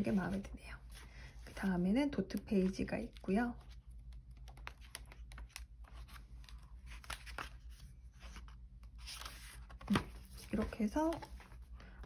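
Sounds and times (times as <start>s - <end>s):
paper pages rustling: 2.5s - 12.0s.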